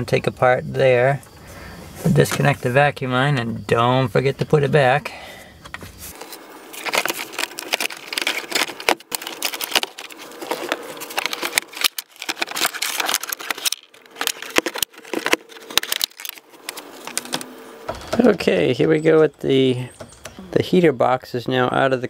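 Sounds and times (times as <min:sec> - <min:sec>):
foam and wires rustling: 0:05.8 - 0:18.5.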